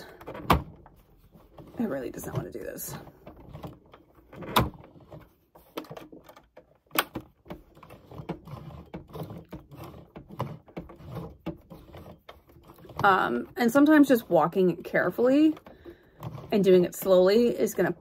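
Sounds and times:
sewing machine clicking and knocking: 0.0 - 18.0.

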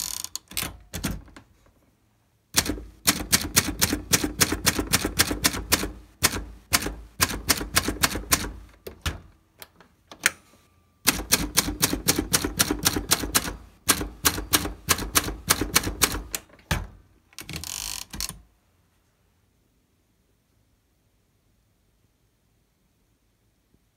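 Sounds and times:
typewriter typing: 0.0 - 1.4, 2.6 - 9.2, 11.1 - 16.8.

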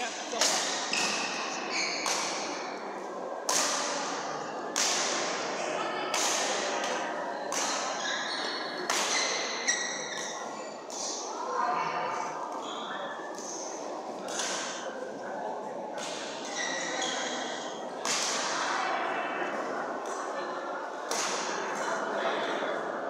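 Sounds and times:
badminton rackets hitting shuttlecock: 2.0 - 2.5, 3.5 - 3.9, 8.8 - 9.5.

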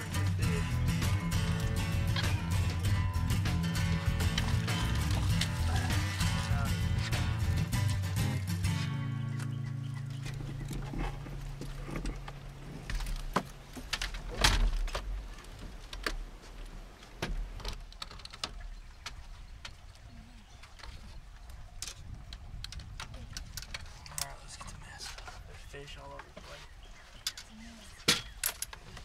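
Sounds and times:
background music: 0.0 - 10.4
objects being handled: 1.1 - 7.6.

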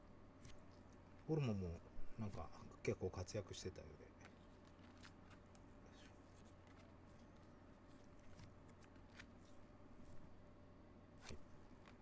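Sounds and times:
low room hum: 0.0 - 12.0
cards being flipped: 0.4 - 1.0, 4.2 - 10.2, 11.2 - 12.0.

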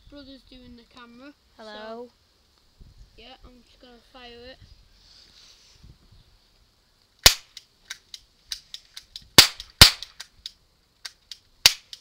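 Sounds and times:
faint cap gun clicks: 7.2 - 12.0
cap gun bangs: 9.4 - 10.1.

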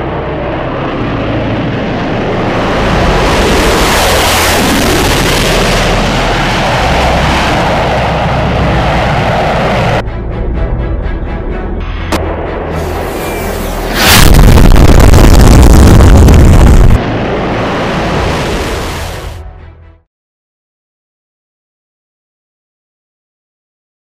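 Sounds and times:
jet flight rushing noise: 0.0 - 10.4, 12.0 - 19.4.

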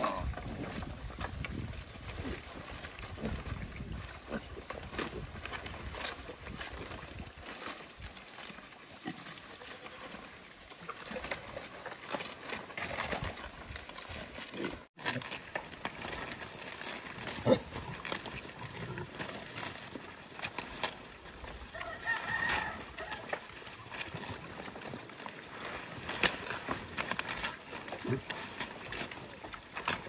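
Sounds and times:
pigs crunching leaves: 0.0 - 30.0
rooster crowing: 21.7 - 23.3.

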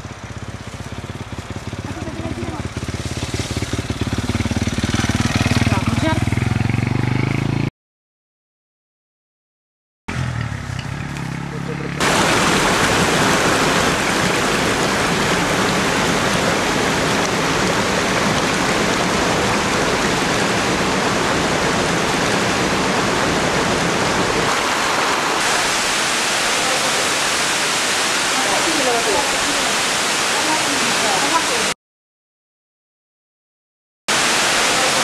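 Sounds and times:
water rushing over rocks: 12.0 - 31.8, 34.1 - 35.0.

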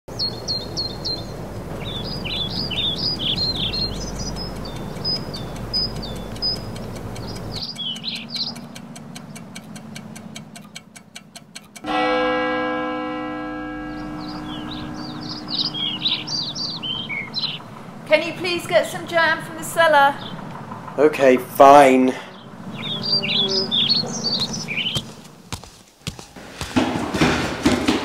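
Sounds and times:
small birds chirping: 0.1 - 11.9, 13.8 - 26.2
clock ticking: 3.6 - 12.2
ringing chord: 11.8 - 17.5.

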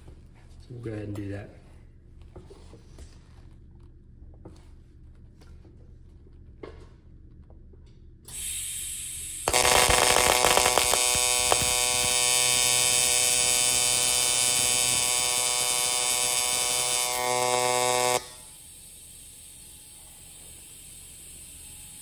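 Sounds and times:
welding arc buzzing: 8.3 - 22.0.

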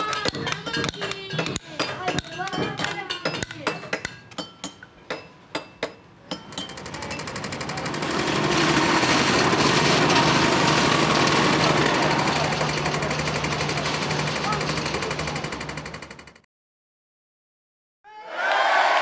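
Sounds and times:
loud fast rattle: 6.5 - 16.4.

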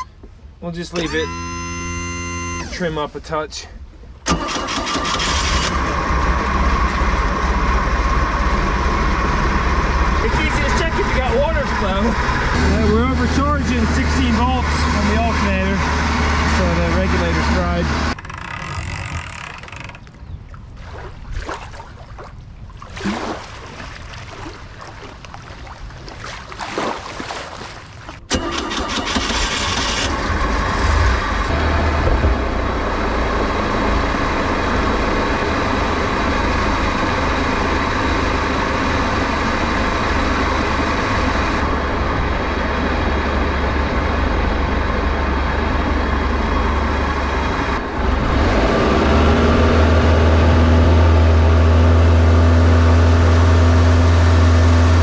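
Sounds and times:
boat engine running: 0.0 - 55.0
water splashing: 19.6 - 29.6.

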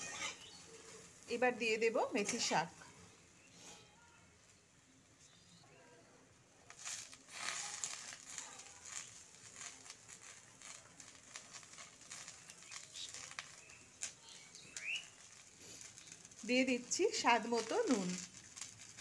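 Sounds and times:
vegetables crackling in hot oil: 0.0 - 5.7, 6.4 - 19.0
leaves rustling: 6.7 - 19.0.

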